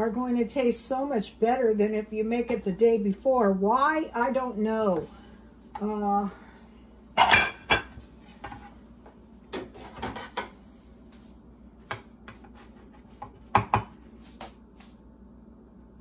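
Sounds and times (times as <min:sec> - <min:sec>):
knocks on wooden cutting board: 0:13.5 - 0:13.9.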